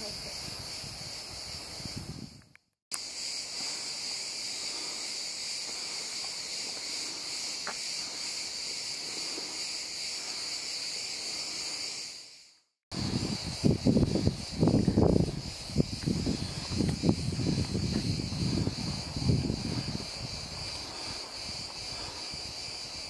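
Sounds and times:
cicadas buzzing: 0.0s - 23.0s.

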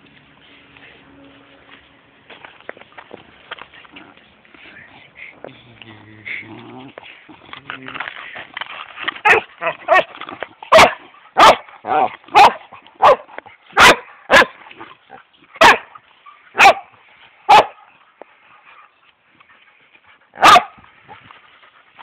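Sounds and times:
dog barking: 9.2s - 10.1s, 10.7s - 14.6s, 15.6s - 15.9s, 16.6s - 16.9s, 17.5s - 17.8s, 20.4s - 20.8s.

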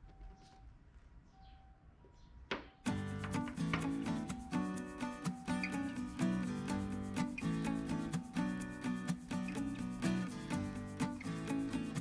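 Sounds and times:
background music with quick beat: 2.9s - 12.0s.

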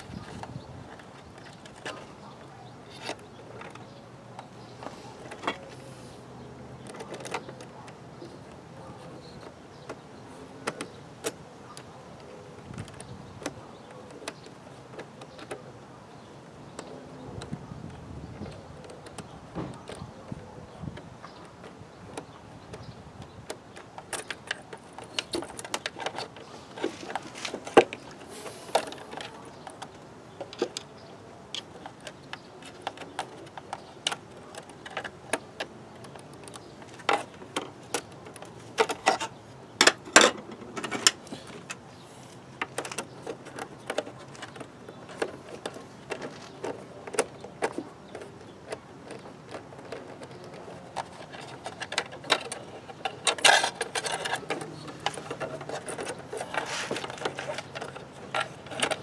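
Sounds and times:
plastic and metal parts clicking: 0.0s - 59.0s.

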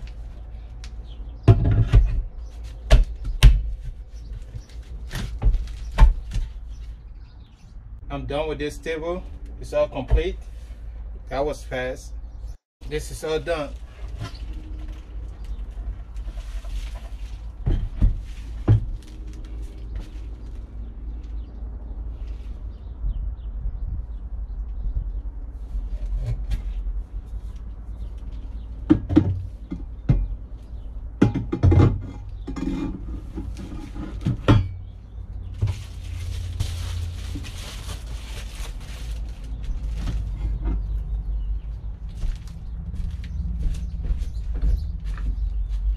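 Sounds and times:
foil insulation crinkling: 3.9s - 6.9s, 35.5s - 40.5s
steady low rumble: 34.8s - 45.9s.

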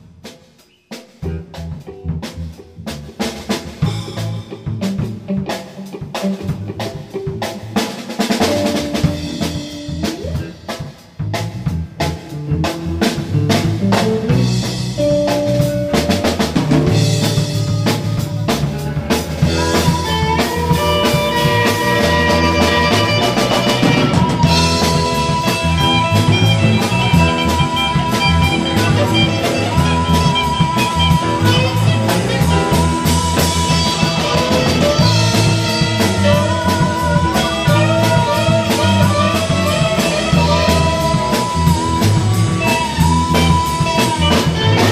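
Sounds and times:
drum kit and bass beat: 0.0s - 44.9s
sustained melody notes: 14.8s - 44.9s.

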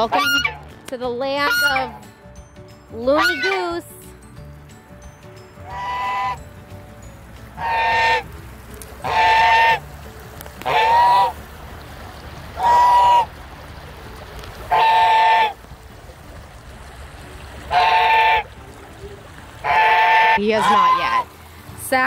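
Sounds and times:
goose honking: 0.0s - 0.6s, 1.4s - 2.0s, 3.1s - 3.8s, 5.6s - 6.4s, 7.6s - 8.3s, 9.0s - 9.8s, 10.6s - 11.4s, 12.6s - 13.3s, 14.7s - 15.6s, 17.7s - 18.5s, 19.6s - 21.3s.

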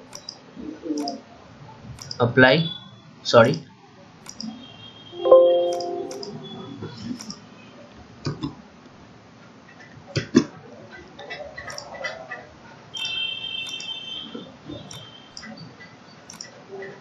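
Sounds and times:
computer mouse clicking: 0.0s - 0.4s, 1.0s - 1.2s, 2.0s - 2.2s, 4.2s - 4.5s, 11.6s - 11.9s, 13.0s - 14.0s, 14.9s - 15.5s, 16.3s - 16.5s
high-pitched tone: 5.2s - 6.7s.

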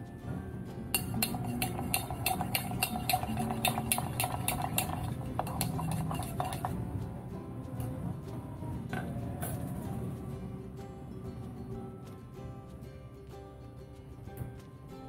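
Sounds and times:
spoon clinking in metal tin: 0.9s - 6.8s.

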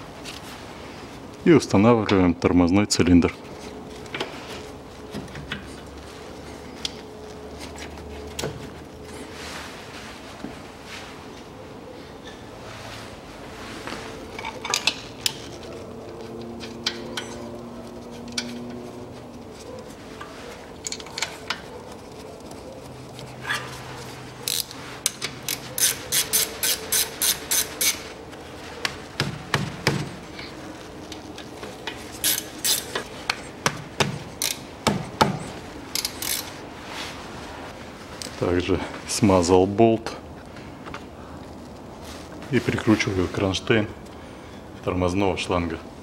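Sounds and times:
metal spanner clicking on bolts: 14.4s - 15.6s, 16.2s - 18.8s, 20.8s - 22.1s, 24.4s - 28.0s, 31.4s - 33.1s, 34.4s - 34.7s, 35.9s - 36.5s.

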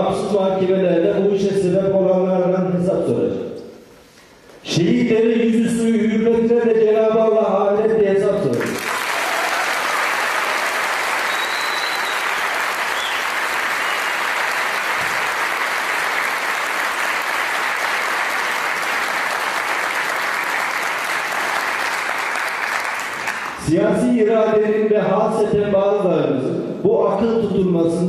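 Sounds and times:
large audience applauding: 8.5s - 23.6s.

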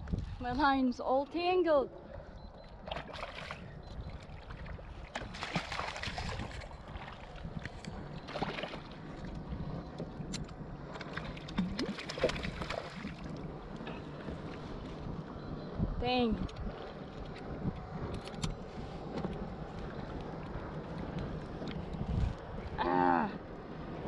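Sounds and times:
wind rumble on microphone: 0.0s - 24.0s
water lapping against kayak hull: 2.0s - 15.2s.

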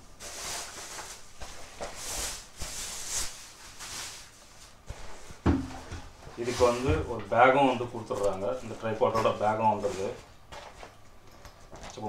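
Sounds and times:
plastic wrapping crinkling: 0.1s - 4.9s.

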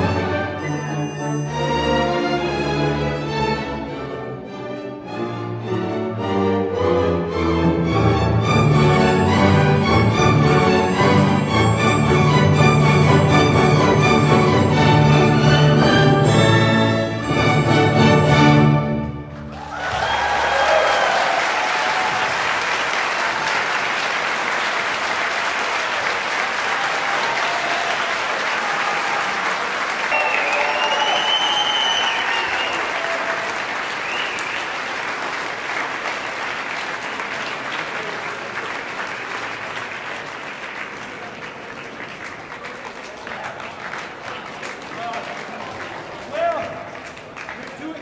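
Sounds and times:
audience applauding: 19.3s - 48.0s.

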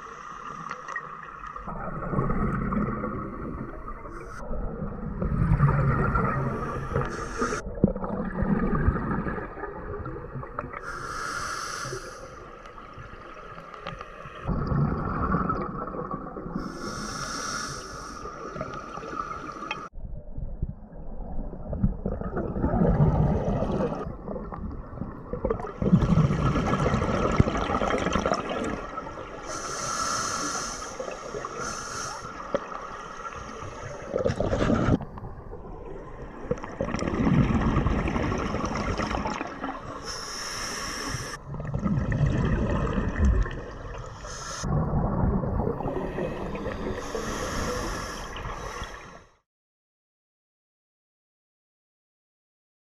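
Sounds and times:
gurgling exhaled bubbles: 1.5s - 10.8s, 14.4s - 17.0s, 21.2s - 31.8s, 32.4s - 40.1s, 41.0s - 49.0s
diver breathing through regulator: 6.5s - 7.6s, 10.8s - 12.5s, 16.6s - 18.5s, 29.5s - 34.0s, 40.0s - 41.4s, 44.1s - 44.8s, 45.8s - 49.4s.

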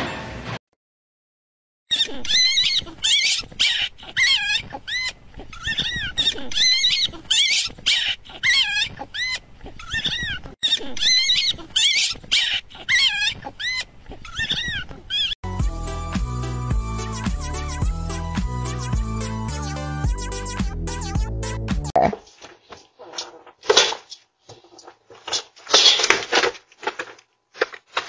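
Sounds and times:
puppy whining: 1.9s - 15.4s.

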